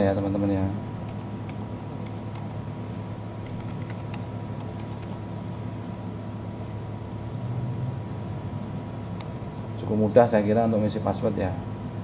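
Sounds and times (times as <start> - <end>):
steady background hum: 0.0 - 12.0
computer keyboard keystrokes: 1.1 - 2.6, 3.4 - 5.2.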